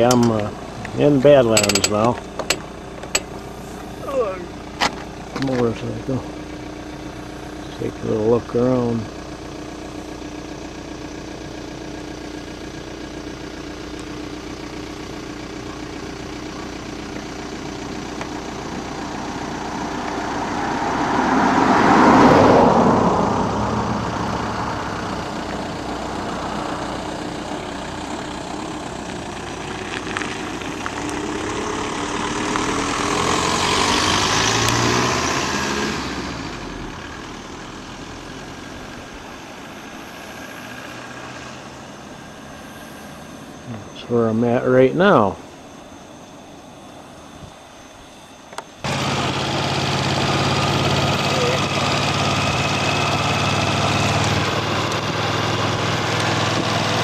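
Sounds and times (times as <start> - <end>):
motorcycles passing: 0.0 - 4.6, 18.9 - 45.4, 48.8 - 57.0
steady engine hum: 0.0 - 57.0.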